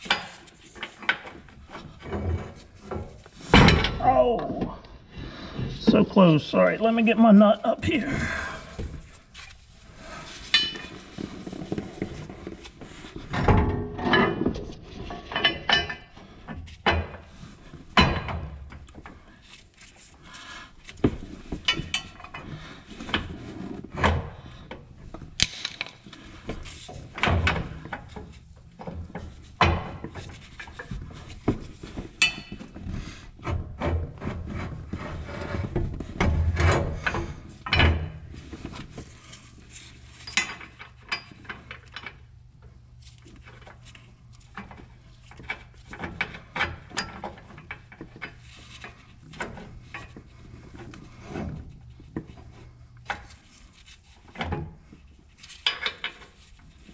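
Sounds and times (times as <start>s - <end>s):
metal knocks and clanks: 1.8s - 4.8s, 13.3s - 16.1s.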